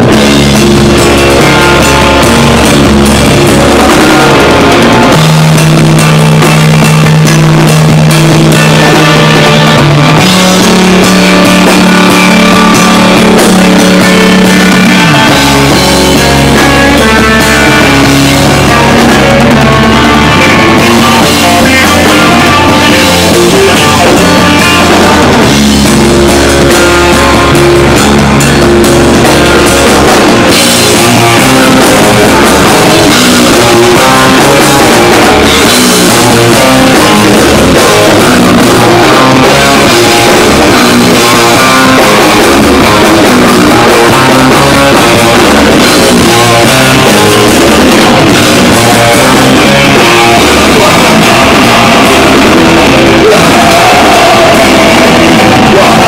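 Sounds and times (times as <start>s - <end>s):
bass guitar: 0.0s - 56.0s
distorted electric guitar: 0.0s - 56.0s
drum kit: 0.0s - 56.0s.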